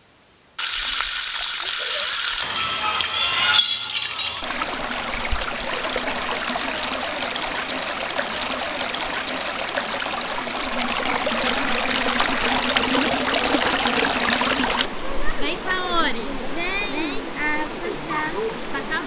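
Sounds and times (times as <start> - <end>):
running water splashing: 0.6 - 14.9.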